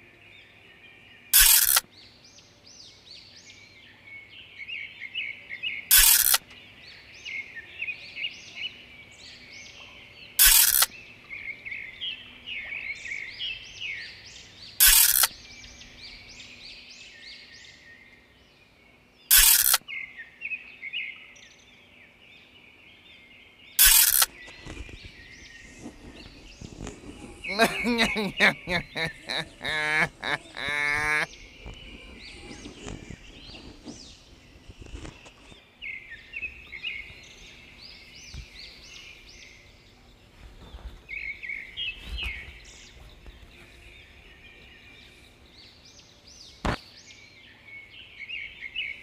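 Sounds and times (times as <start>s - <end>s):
small birds chirping: 0.0s - 49.0s
short loud noise bursts: 23.8s - 24.3s.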